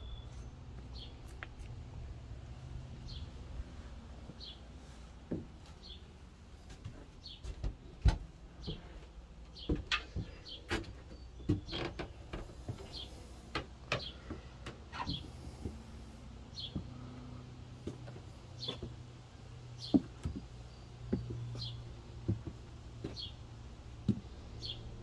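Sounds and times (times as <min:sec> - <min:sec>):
bird chirping: 0:00.0 - 0:01.3, 0:20.6 - 0:21.9
footsteps on wooden boards: 0:06.6 - 0:15.9, 0:16.6 - 0:17.1, 0:17.8 - 0:19.1, 0:19.8 - 0:24.8.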